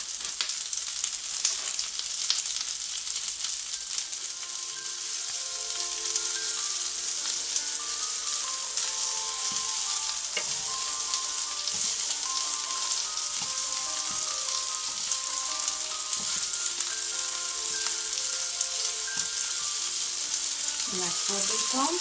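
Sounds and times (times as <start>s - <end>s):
vegetables sizzling in a pan: 0.0s - 22.0s
tongs knocking: 9.4s - 10.7s.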